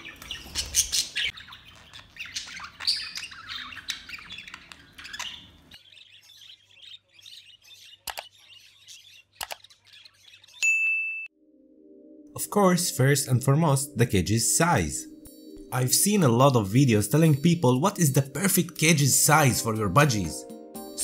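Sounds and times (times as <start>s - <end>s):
budgies chirping and warbling: 0.0s - 10.6s
sharp clicks: 8.1s - 8.3s, 9.4s - 9.6s.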